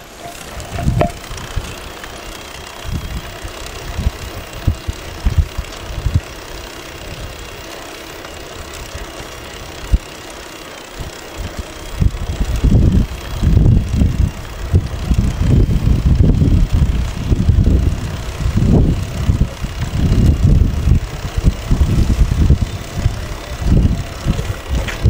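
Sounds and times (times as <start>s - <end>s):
wind buffeting microphone: 0.0s - 1.9s, 2.7s - 6.4s, 11.0s - 25.0s
rush of air and road noise: 0.0s - 25.0s.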